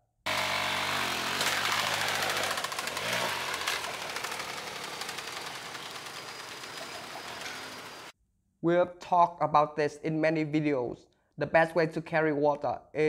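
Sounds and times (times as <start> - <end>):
motorcycle engine: 0.3 - 8.1.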